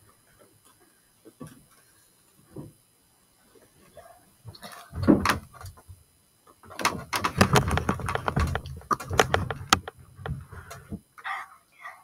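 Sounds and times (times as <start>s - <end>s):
dull thuds: 4.5s - 6.0s, 6.6s - 11.0s
knocks and clicks on laptop: 6.8s - 10.5s.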